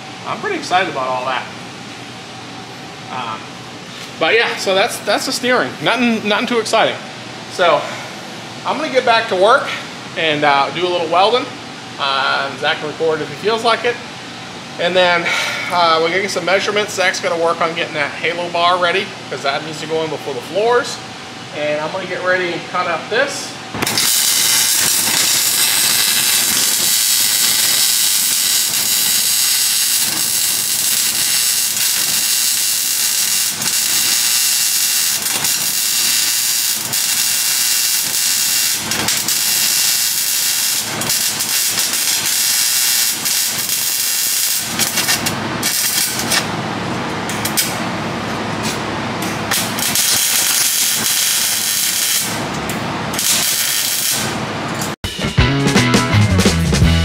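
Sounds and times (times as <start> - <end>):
power tool cutting sheet metal: 23.8 - 44.0, 53.2 - 54.3.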